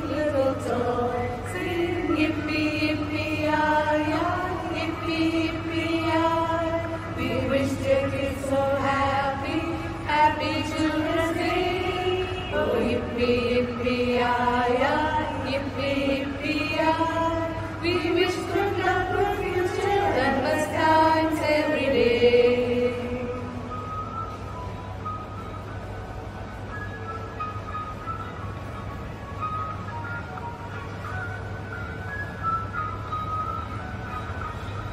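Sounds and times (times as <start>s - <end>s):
women's choir singing: 0.0s - 23.8s.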